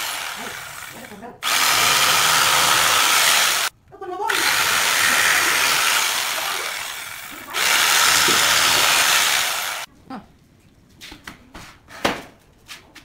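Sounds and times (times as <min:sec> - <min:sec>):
electric jigsaw cutting wood: 0:00.0 - 0:03.7, 0:04.3 - 0:09.9.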